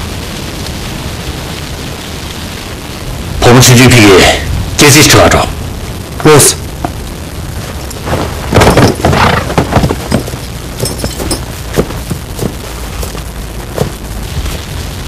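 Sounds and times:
wind rumbling on microphone: 0:00.0 - 0:15.0
horses rustling through grass: 0:07.6 - 0:15.0.

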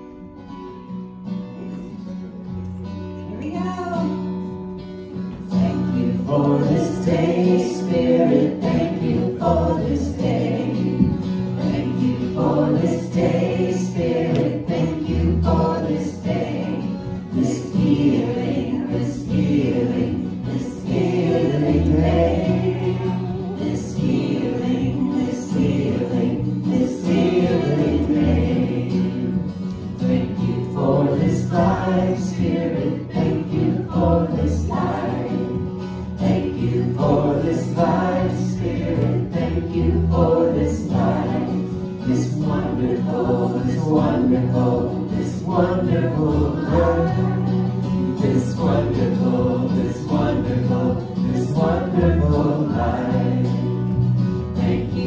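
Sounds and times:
acoustic guitar: 0:00.0 - 0:55.0
voices singing together: 0:05.2 - 0:55.0.

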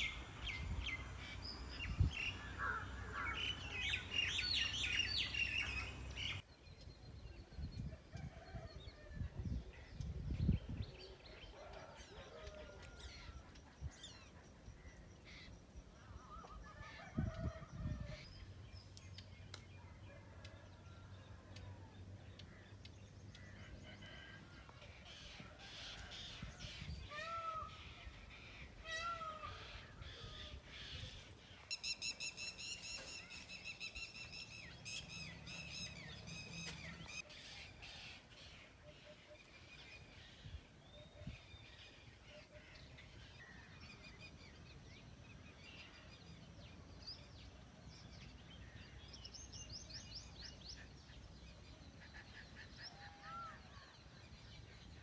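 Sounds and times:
birds calling: 0:00.0 - 0:06.4.

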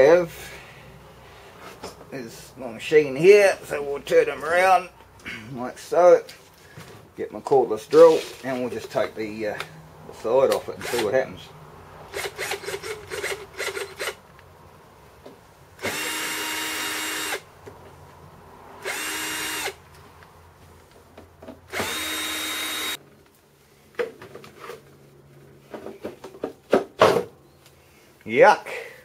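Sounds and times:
cordless drill whining: 0:10.8 - 0:11.0, 0:12.1 - 0:14.2, 0:15.8 - 0:17.4, 0:18.8 - 0:19.8, 0:21.7 - 0:23.0.

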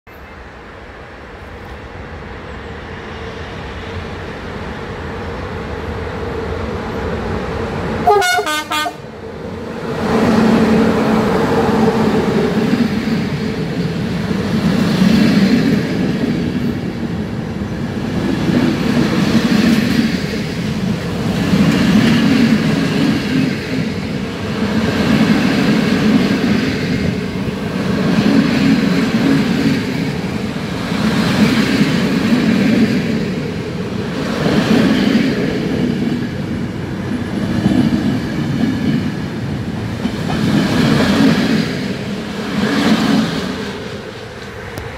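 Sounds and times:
train wheels rumbling on rails: 0:00.1 - 0:44.9
train horn toot: 0:08.0 - 0:09.0.

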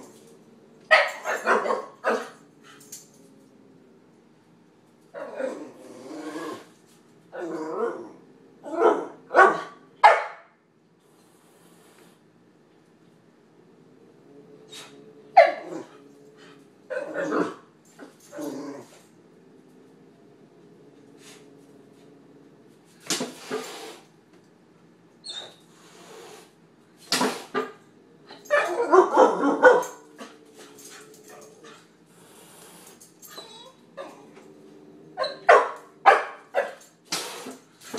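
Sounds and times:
puppy barking and yipping: 0:00.9 - 0:02.3, 0:28.5 - 0:30.0
puppy barking: 0:00.9 - 0:02.4, 0:08.8 - 0:10.5, 0:15.4 - 0:15.7, 0:28.5 - 0:30.0, 0:35.2 - 0:36.8.

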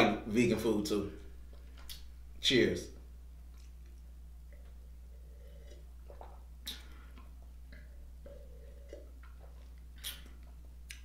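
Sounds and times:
low hum: 0:00.0 - 0:11.0
man gulping and swallowing: 0:03.5 - 0:11.0.

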